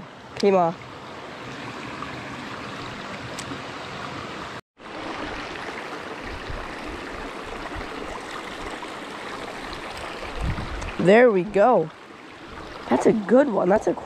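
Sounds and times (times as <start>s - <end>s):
brook flowing over stones: 0.1s - 14.0s.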